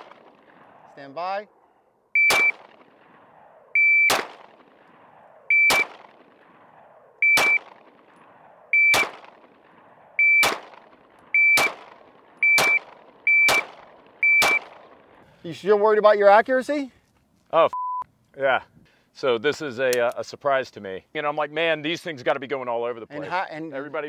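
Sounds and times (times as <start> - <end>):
pistol shots: 0.0 - 0.9, 2.2 - 15.2
shot timer beeps: 2.2 - 2.6, 11.4 - 11.7, 12.4 - 13.6, 14.2 - 14.6.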